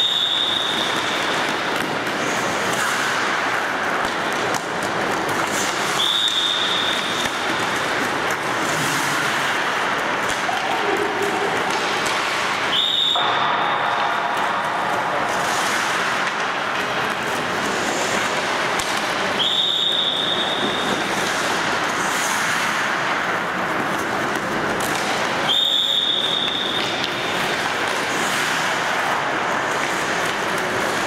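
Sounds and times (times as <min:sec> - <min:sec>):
whistle blasts: 0:00.0 - 0:00.9, 0:06.0 - 0:07.2, 0:12.7 - 0:13.4, 0:19.4 - 0:20.9, 0:25.5 - 0:26.8
hockey stick hitting puck: 0:00.0 - 0:31.0
skate blades scraping ice: 0:00.0 - 0:31.0.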